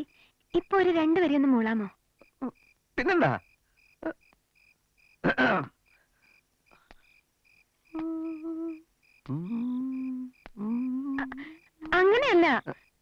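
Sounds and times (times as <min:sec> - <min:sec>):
crickets chirping: 0:00.0 - 0:13.0
man humming: 0:08.0 - 0:11.5.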